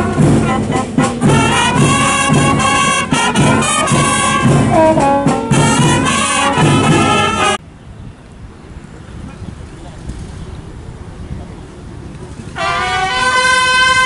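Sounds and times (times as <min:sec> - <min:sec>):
marching band playing a march: 0:00.0 - 0:07.6, 0:12.6 - 0:14.0
steady drum beat: 0:00.0 - 0:07.6.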